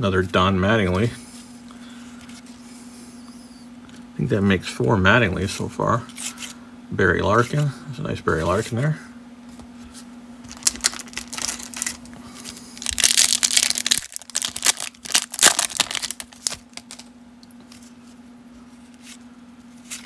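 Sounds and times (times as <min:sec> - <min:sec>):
foil wrapper crinkling: 0:10.5 - 0:17.1.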